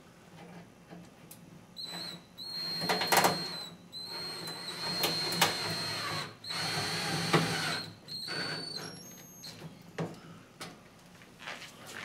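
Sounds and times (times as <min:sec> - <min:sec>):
cordless drill motor whine: 0:01.8 - 0:09.5.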